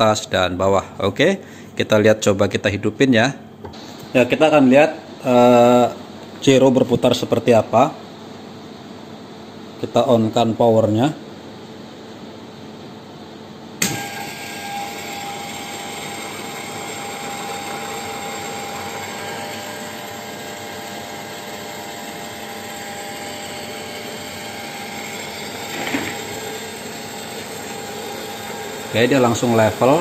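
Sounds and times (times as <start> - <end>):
gyro motor high whine: 13.8 - 30.0.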